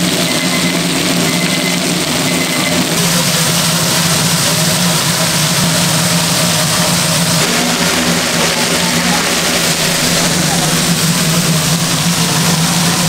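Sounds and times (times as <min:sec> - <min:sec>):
machine hum: 0:00.0 - 0:13.0
continuous hiss: 0:02.7 - 0:13.0.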